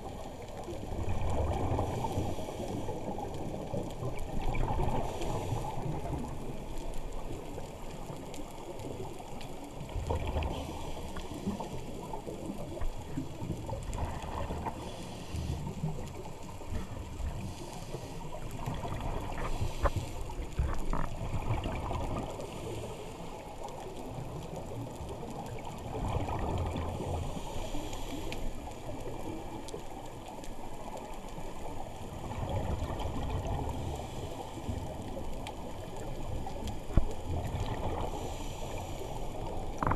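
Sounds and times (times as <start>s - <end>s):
diver regulator exhaust bubbles: 0.8s - 2.4s, 9.2s - 22.7s, 25.0s - 27.4s, 39.3s - 39.9s.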